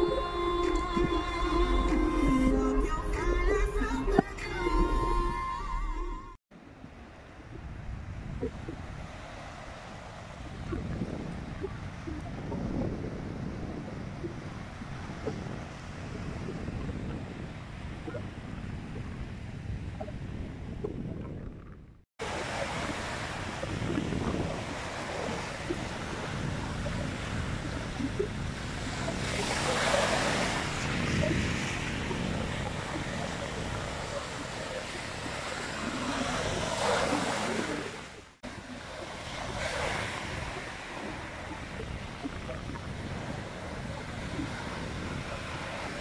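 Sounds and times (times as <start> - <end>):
surf washing over pebbles: 22.2 - 46.0.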